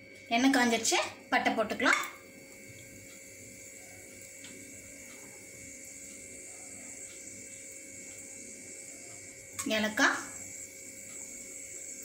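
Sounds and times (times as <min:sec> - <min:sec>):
electrical hum: 0:00.0 - 0:12.0
faint ticks: 0:04.0 - 0:08.3.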